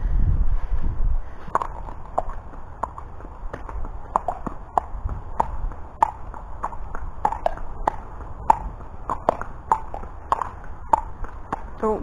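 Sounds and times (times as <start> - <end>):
horse hooves clip-clopping on concrete: 1.5 - 12.0.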